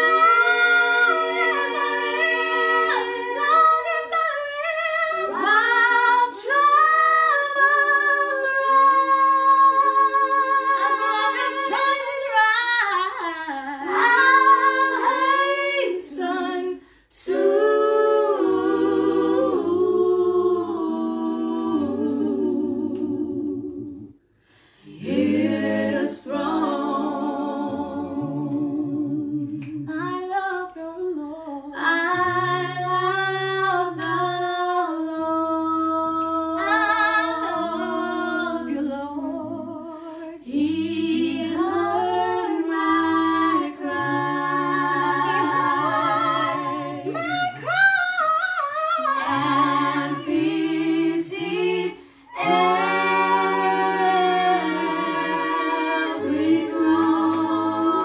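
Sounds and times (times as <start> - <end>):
group of voices singing: 0.0 - 58.0
lower voices singing: 0.0 - 58.0
woman singing: 29.6 - 37.8.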